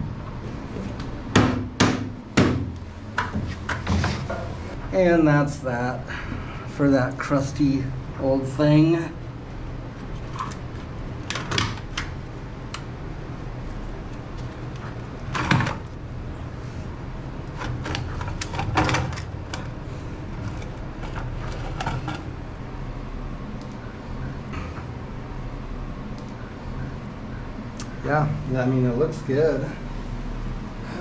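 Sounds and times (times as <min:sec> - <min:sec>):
steady low hum: 0:00.0 - 0:31.0
metal knocks and scraping: 0:03.2 - 0:04.8, 0:20.3 - 0:22.3.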